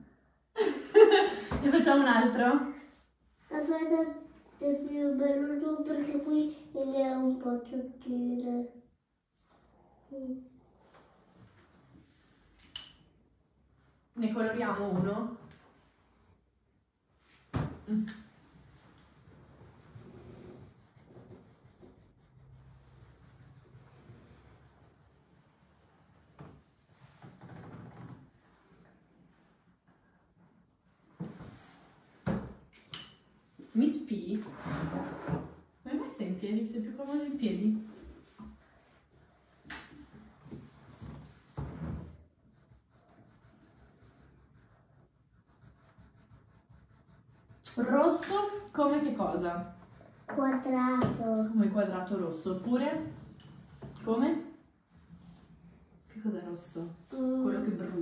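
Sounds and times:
marker scribbling on whiteboard: 18.1s - 27.4s, 28.7s - 31.8s, 42.4s - 51.5s.

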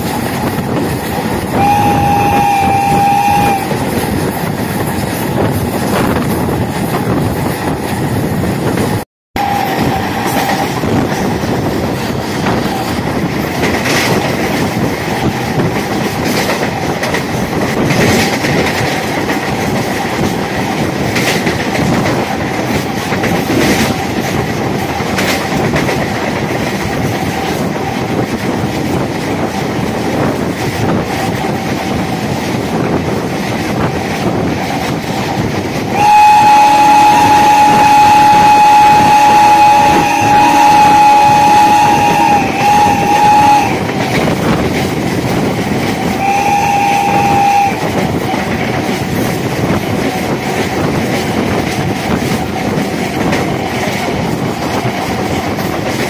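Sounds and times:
train wheels clattering on rails: 0.0s - 56.0s
train horn: 1.5s - 4.0s, 9.4s - 11.0s, 35.9s - 44.0s, 46.0s - 48.1s.

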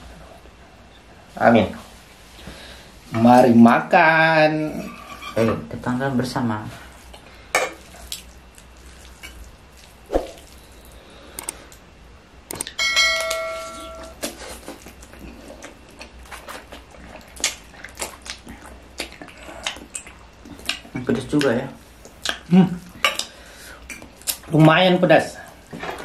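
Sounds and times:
bell-like chime: 12.8s - 14.1s
slurping and chewing noodles: 14.0s - 21.0s.

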